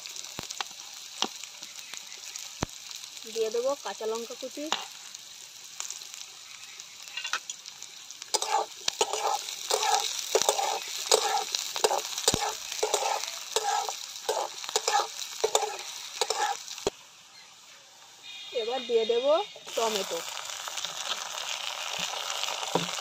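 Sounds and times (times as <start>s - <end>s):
vegetables sizzling in hot oil: 0.0s - 23.0s
metal spatula scraping a pan: 8.3s - 16.7s.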